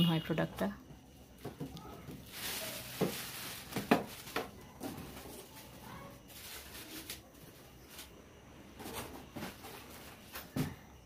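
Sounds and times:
plastic wrapping crinkling: 1.7 - 8.2.

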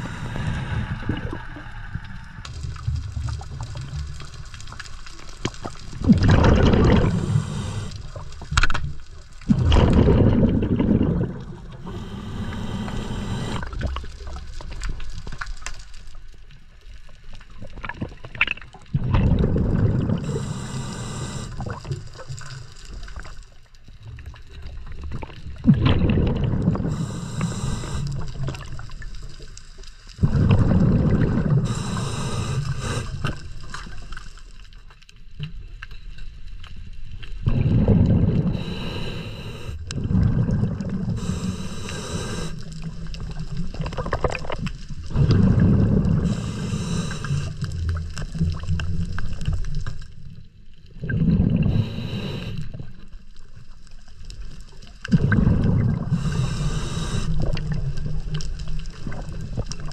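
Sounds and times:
exhaled bubbles rumbling: 0.0 - 15.6, 17.4 - 34.7, 37.2 - 53.6, 54.2 - 59.9
regulator hissing inhalations: 7.0 - 8.1, 11.8 - 13.8, 20.2 - 21.7, 26.8 - 28.3, 31.6 - 33.4, 38.5 - 39.8, 41.1 - 42.7, 46.2 - 47.6, 51.7 - 52.8, 56.0 - 57.4.

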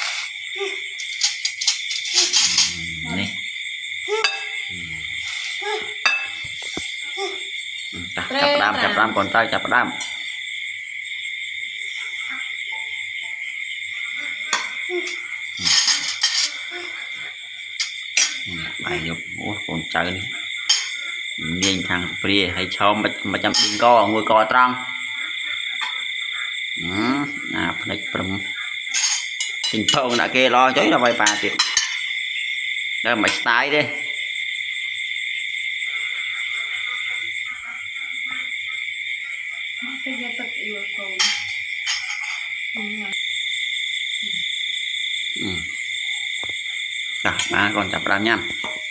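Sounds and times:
night insects trilling: 0.0 - 48.9
soft voices: 0.6 - 1.2, 2.1 - 3.4, 4.1 - 10.1, 14.2 - 17.4, 18.4 - 20.3, 26.8 - 28.6, 42.8 - 43.2, 45.4 - 45.8.

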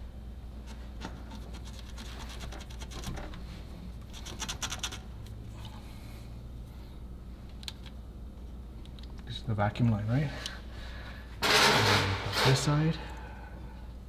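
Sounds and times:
scratchy rubbing of plastic parts: 0.6 - 5.1.

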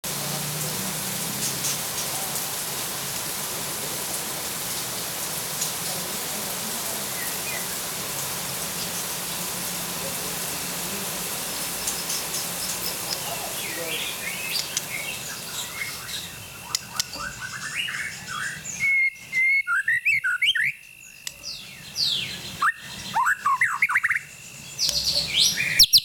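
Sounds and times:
rain hissing: 0.0 - 18.8
faint bird chirps: 8.6 - 26.0.

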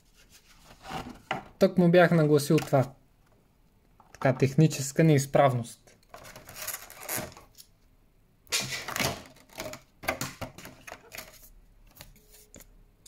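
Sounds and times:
cardboard packaging rustling: 6.1 - 7.6.

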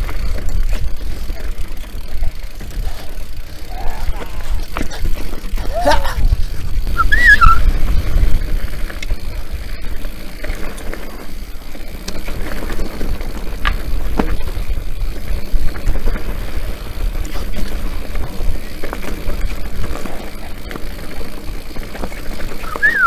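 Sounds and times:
bicycle tyre noise: 0.0 - 23.0
bike clicks and rattles: 0.0 - 23.0
wind buffeting microphone: 2.6 - 10.2.

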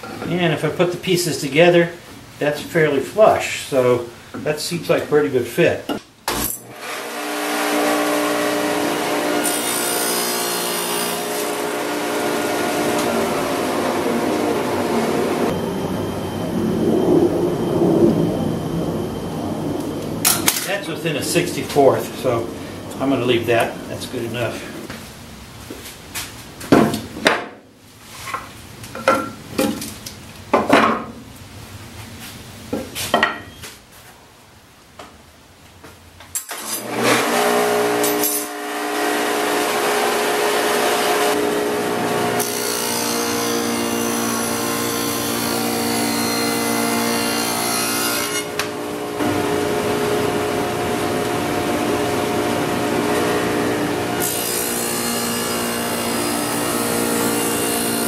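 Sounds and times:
table saw cutting wood: 6.3 - 15.6, 36.5 - 58.0.

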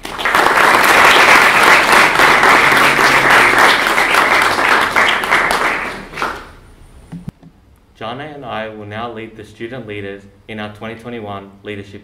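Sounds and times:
people applauding: 0.0 - 6.6.

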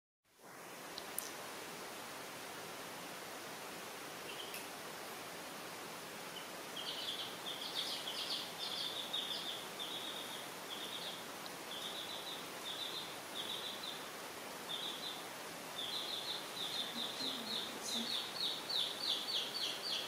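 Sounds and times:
steady background hiss: 0.3 - 20.0
baby chicks peeping: 4.3 - 4.7, 6.3 - 15.2, 15.8 - 20.0.

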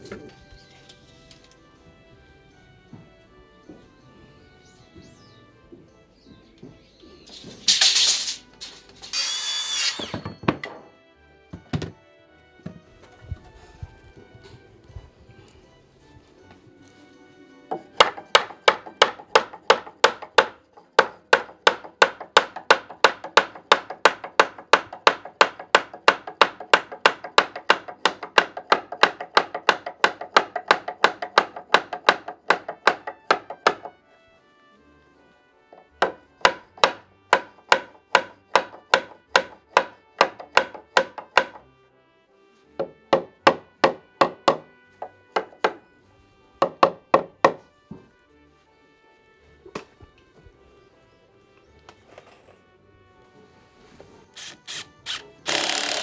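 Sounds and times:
hammer striking wood: 9.9 - 12.0, 17.7 - 34.0, 35.7 - 41.7, 42.8 - 45.9, 46.6 - 48.1.

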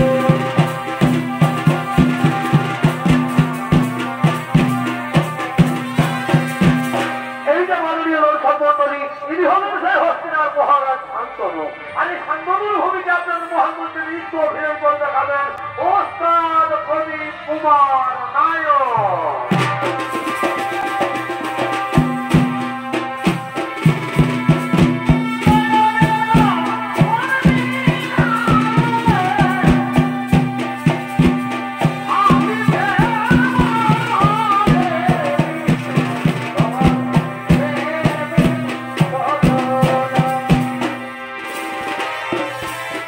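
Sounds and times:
drums beating: 0.0 - 7.8, 18.9 - 43.0.

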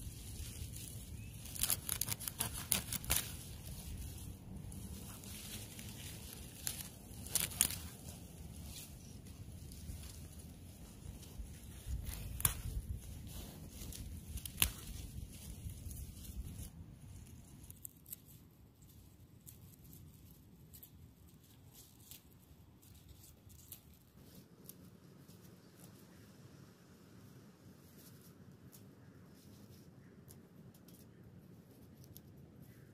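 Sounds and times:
leaves rustling: 0.0 - 32.9
knife cutting leaf stalks: 0.4 - 3.9, 4.9 - 8.0, 11.9 - 12.9, 13.9 - 15.4
stems snapping in sharp clicks: 1.4 - 3.8, 5.8 - 8.0, 11.9 - 12.8, 13.9 - 15.1.

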